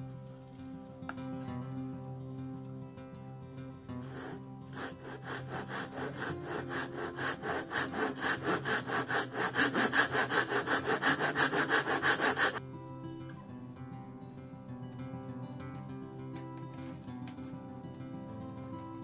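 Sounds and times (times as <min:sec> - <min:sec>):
hand saw cutting wood: 0:04.0 - 0:12.6.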